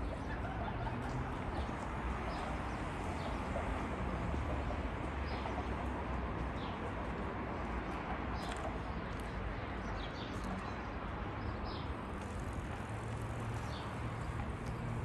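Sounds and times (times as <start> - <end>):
distant traffic hum: 0.0 - 15.0.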